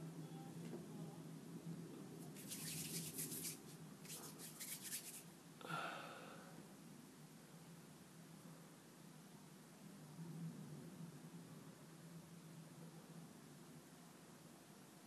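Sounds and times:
low steady hum: 0:00.0 - 0:15.0
play dough crackly rustling: 0:02.2 - 0:05.3.

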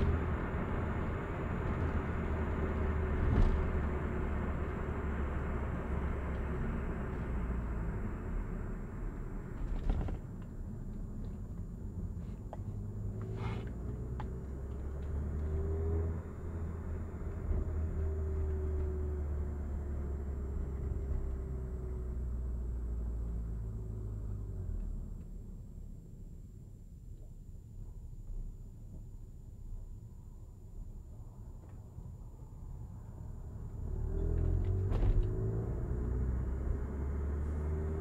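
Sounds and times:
car engine and road rumble: 0:00.0 - 0:38.0.

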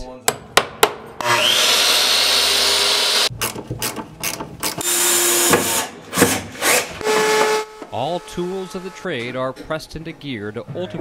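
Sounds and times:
power tool whine: 0:01.2 - 0:03.3.

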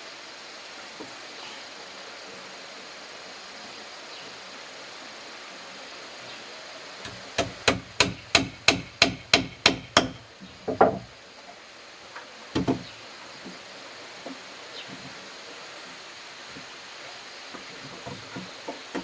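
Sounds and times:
hammer tapping on wood: 0:07.1 - 0:11.1.

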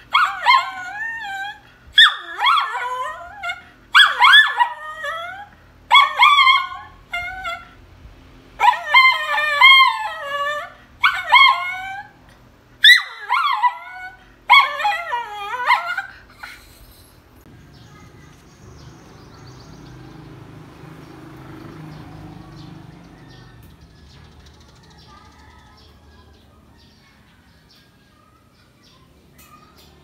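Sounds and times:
small dog howling and whining: 0:00.1 - 0:07.8, 0:08.6 - 0:16.8.

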